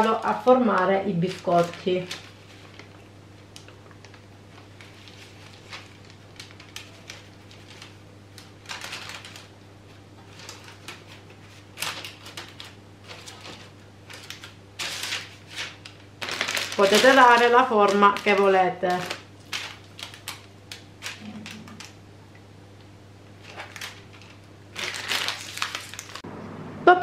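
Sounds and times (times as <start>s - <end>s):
plastic bag and paper crinkling: 0.0s - 22.0s, 23.4s - 26.3s
steady low hum: 12.6s - 27.0s.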